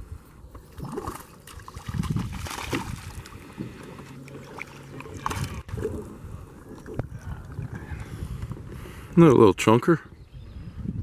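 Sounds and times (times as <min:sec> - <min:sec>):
fish splashing and thrashing in water: 0:00.7 - 0:07.8.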